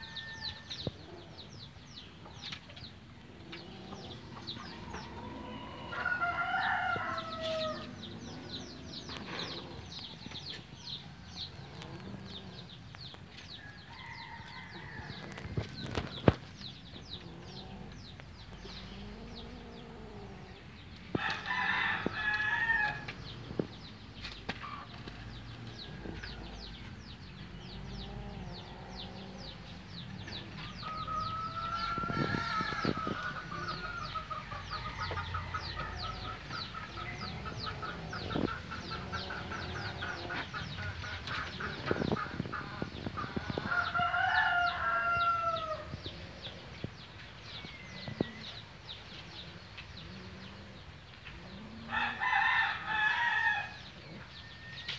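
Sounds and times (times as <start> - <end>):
rooster crowing: 0.0 - 0.7, 4.8 - 8.0, 21.2 - 23.1, 43.6 - 45.9, 51.9 - 53.8.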